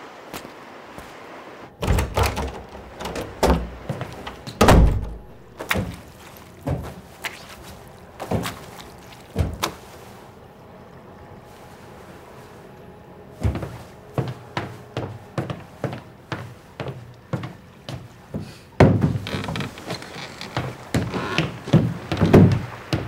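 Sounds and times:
irregular knocks and thuds: 1.8s - 7.0s, 9.3s - 9.8s, 13.4s - 16.5s, 18.8s - 23.0s.

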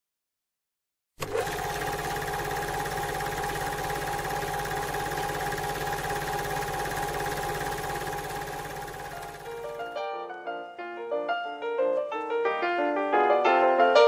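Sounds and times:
mechanical whirring with clatter: 1.2s - 10.0s.

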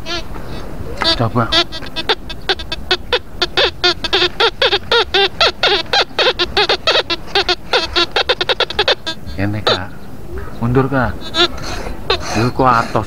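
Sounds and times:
metal detector beeps: 1.0s - 9.8s.

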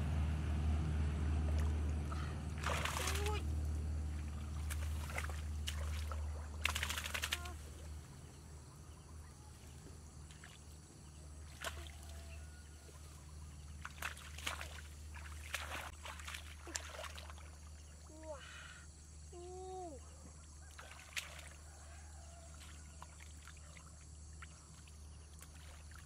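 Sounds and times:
low hum: 0.0s - 16.6s
muddy water sloshing and splashing: 1.2s - 18.7s, 20.1s - 26.0s.

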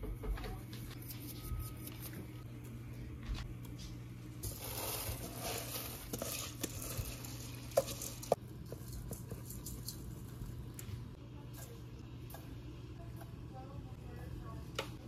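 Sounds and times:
rice and liquid pouring: 4.4s - 10.7s.

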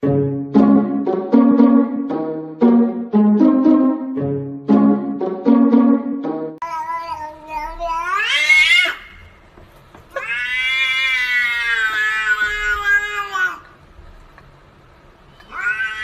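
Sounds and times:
cat meowing: 6.6s - 9.2s, 10.1s - 13.7s, 15.4s - 16.0s.

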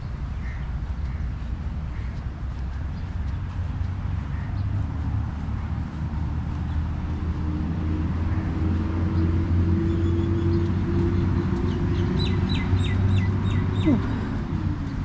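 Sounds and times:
motor vehicle engine rumble: 0.0s - 15.0s
bird chirping: 9.1s - 14.1s.

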